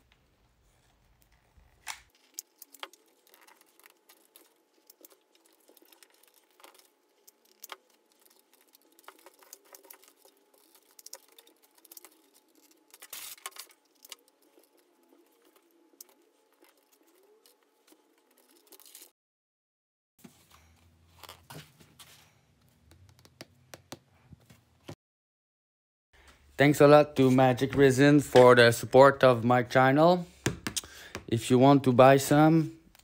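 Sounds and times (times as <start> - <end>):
dry wood clicking and crackling: 1.2 - 19.1.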